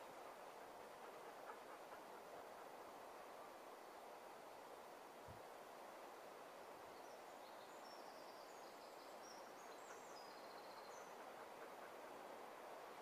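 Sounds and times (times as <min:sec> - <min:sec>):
faint woodland hiss: 0:00.0 - 0:13.0
small bird singing: 0:07.0 - 0:11.2.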